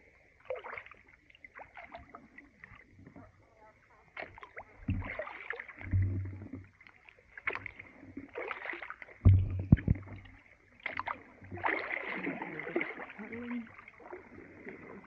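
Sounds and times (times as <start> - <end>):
kayak paddles splashing: 0.0 - 15.0
kayaks pushing through slushy ice: 10.8 - 15.0.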